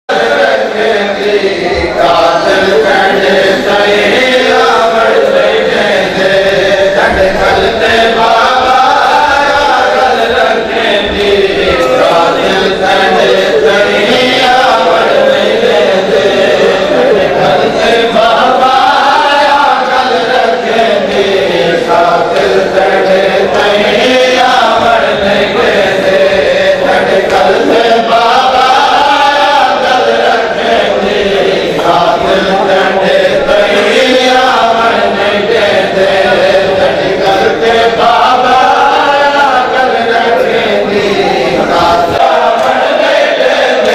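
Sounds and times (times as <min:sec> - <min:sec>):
men chanting: 0:00.1 - 0:43.9.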